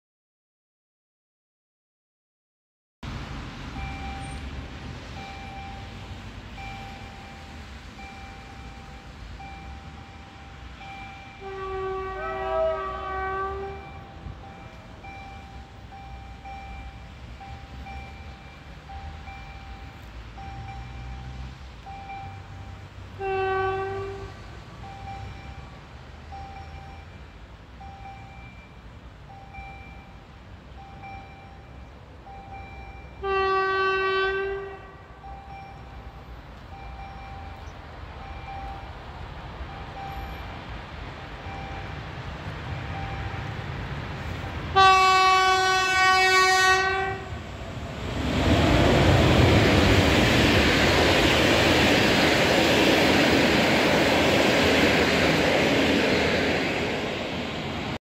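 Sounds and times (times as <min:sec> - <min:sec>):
train coaches rolling past: 0:03.0 - 0:58.0
level crossing signal beeping: 0:03.7 - 0:45.0
train horn: 0:11.3 - 0:14.3, 0:23.1 - 0:24.7, 0:33.2 - 0:35.3, 0:44.7 - 0:47.4.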